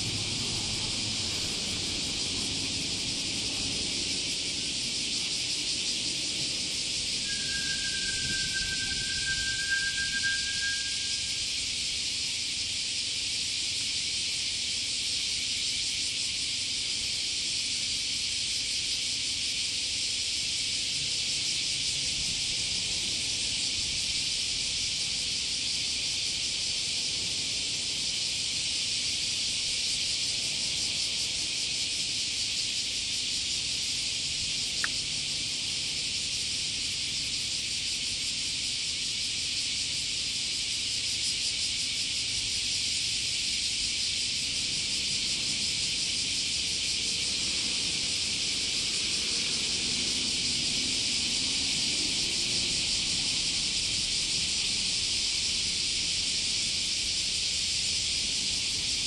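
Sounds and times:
insect chorus drone: 0:00.0 - 0:59.0.

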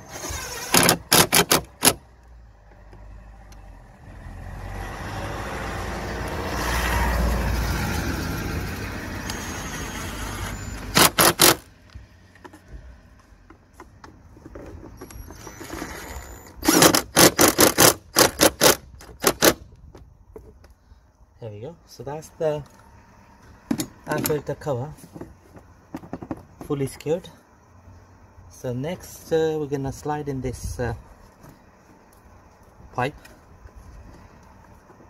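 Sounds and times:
drill clutch clicking: 0:00.1 - 0:02.0, 0:10.9 - 0:11.6, 0:16.5 - 0:19.6.

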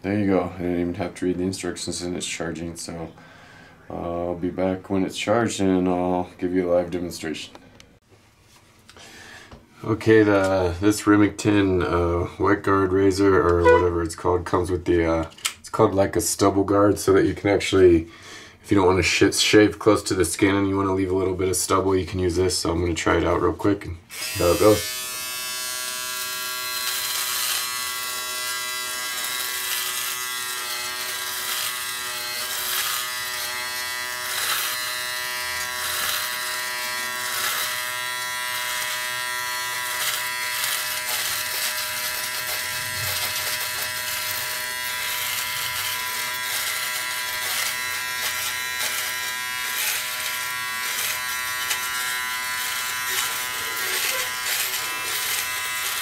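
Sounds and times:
electric shaver buzzing: 0:13.6 - 0:13.9, 0:24.1 - 0:56.0
shaver rasping over stubble: 0:24.1 - 0:56.0.

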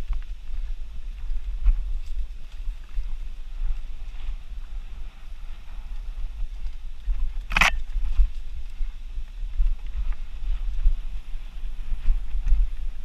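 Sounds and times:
wind buffeting microphone: 0:00.0 - 0:13.0
bike ticks and rattles: 0:05.9 - 0:13.0.

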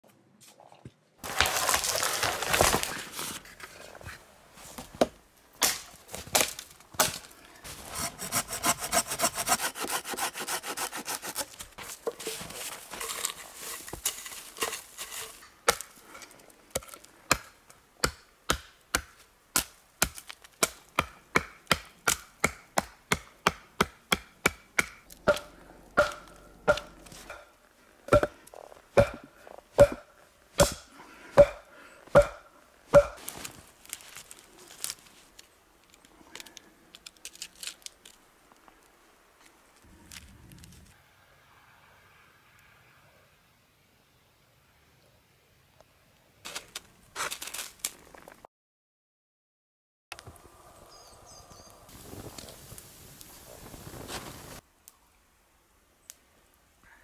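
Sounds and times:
hand saw cutting tree trunk: 0:07.7 - 0:13.4.

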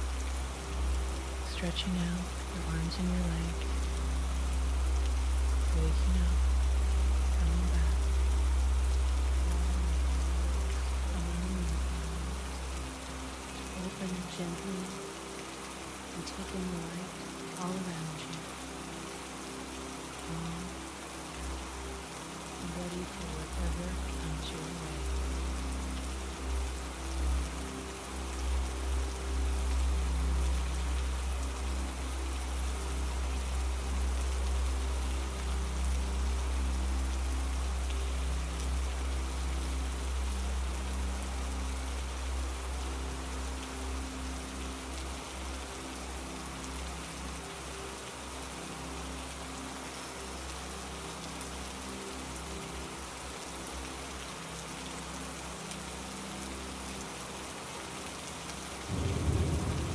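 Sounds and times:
steady rain patter: 0:00.0 - 0:59.9
low droning pad: 0:18.2 - 0:59.9.

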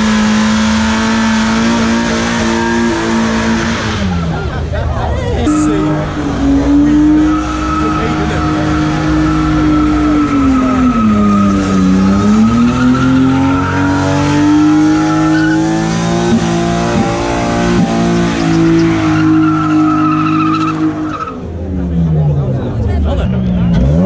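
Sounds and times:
car engine revving high: 0:00.0 - 0:24.0
tyres squealing: 0:05.4 - 0:21.5.

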